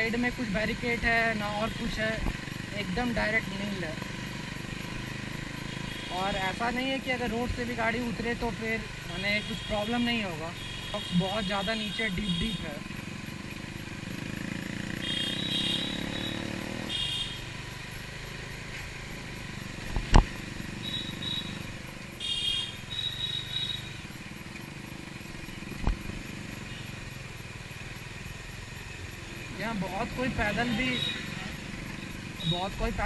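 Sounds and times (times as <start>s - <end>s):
motorcycle engine running: 0.0s - 33.0s.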